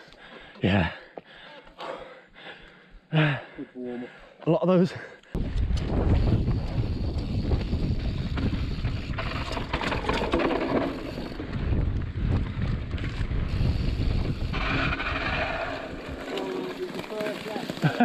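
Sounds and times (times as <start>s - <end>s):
wind on microphone: 5.4s - 16.6s
bike clicking and rattling: 5.4s - 18.0s
tyres rolling on dirt: 6.6s - 18.0s.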